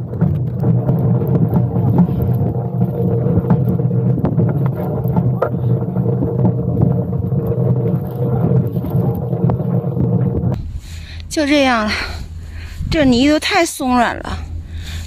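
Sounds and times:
trailer wheels rumbling and rattling: 0.0s - 10.6s.

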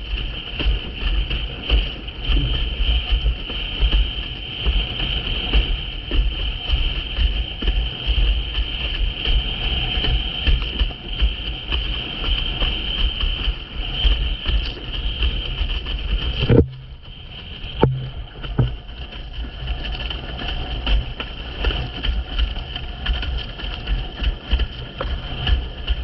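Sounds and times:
wind buffeting microphone: 0.0s - 26.0s
water rushing past board: 14.8s - 26.0s
board hitting waves: 14.9s - 26.0s
sharp knock: 17.8s - 18.7s.

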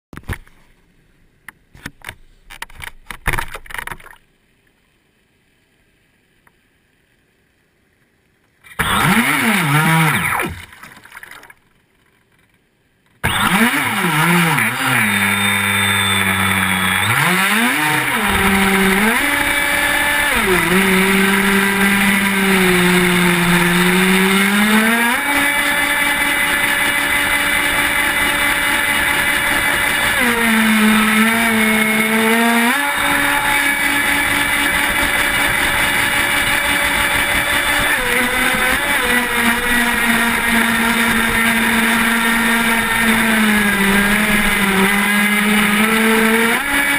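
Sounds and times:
model boat motor revving: 8.7s - 10.8s, 13.2s - 46.9s
water rushing past hull: 9.1s - 11.6s.

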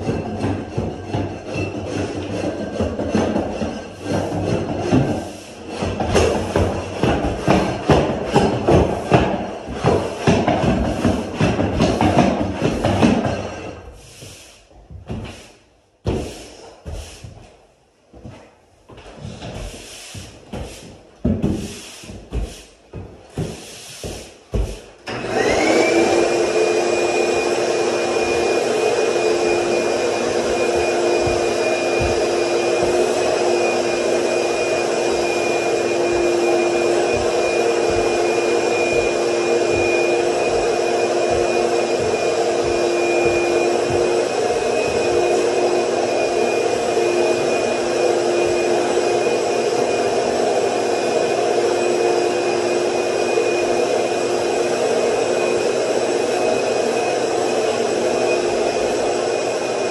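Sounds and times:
shop vacuum motor whine: 25.0s - 59.9s.

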